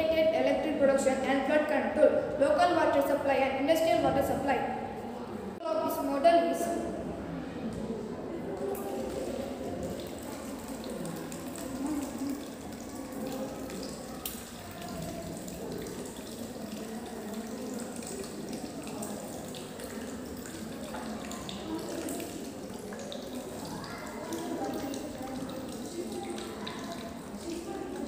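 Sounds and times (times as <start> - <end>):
water splashing into plastic bowl: 7.8 - 28.0.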